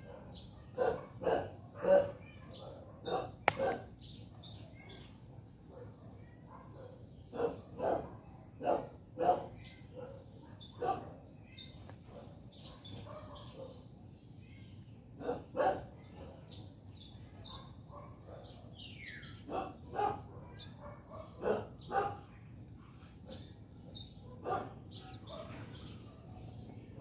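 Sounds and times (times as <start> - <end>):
dog barking: 0.0 - 3.9, 5.7 - 11.2, 12.2 - 13.8, 15.2 - 16.5, 17.5 - 18.7, 19.4 - 23.5, 24.2 - 26.5
small birds chirping: 0.0 - 27.0.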